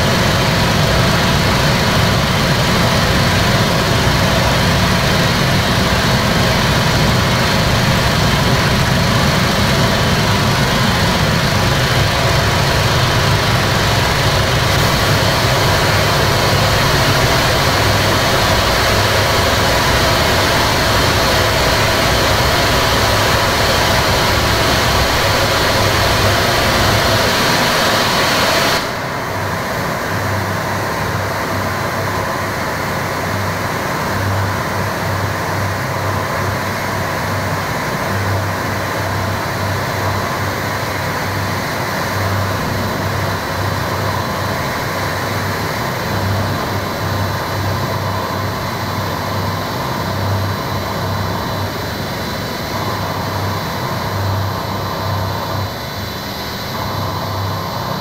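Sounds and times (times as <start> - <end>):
harsh distorted noise: 0.0 - 29.6.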